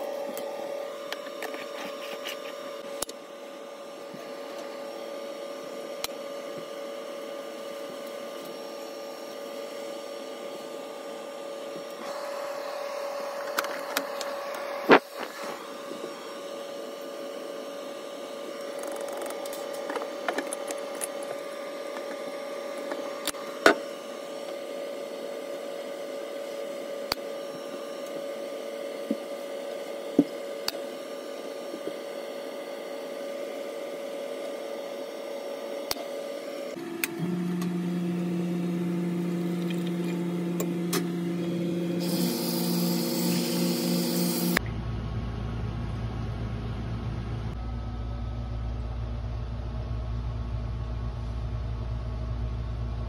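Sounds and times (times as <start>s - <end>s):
steady hum: 0.0s - 53.0s.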